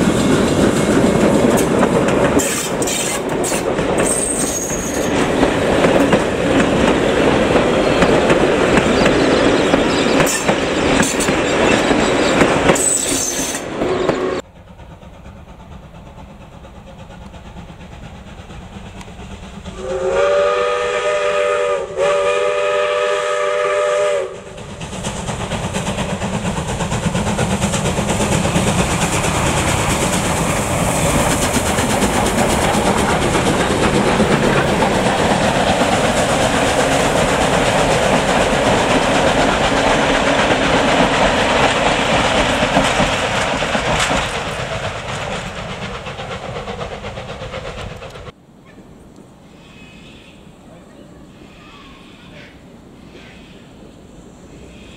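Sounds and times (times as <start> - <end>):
steam train rumbling past: 0.0 - 54.9
steam locomotive chime whistle: 4.0 - 5.2, 11.7 - 14.4, 19.8 - 24.4.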